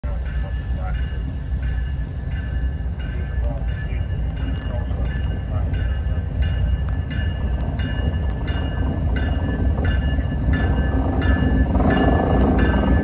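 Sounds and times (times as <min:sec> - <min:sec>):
bell ringing: 0:00.0 - 0:13.0
diesel locomotives rumbling: 0:00.0 - 0:13.0.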